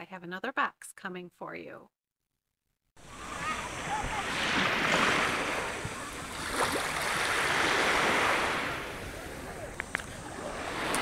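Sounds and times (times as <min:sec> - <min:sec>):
ocean surf washing in: 0:03.0 - 0:11.0.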